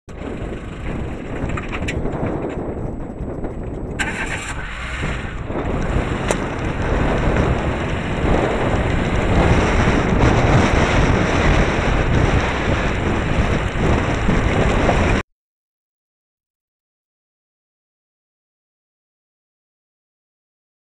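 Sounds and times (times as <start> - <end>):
car and tyres rumbling: 0.1 - 15.2
wind buffeting microphone: 0.1 - 15.2
sharp knocks from bumpy ground: 5.6 - 7.9.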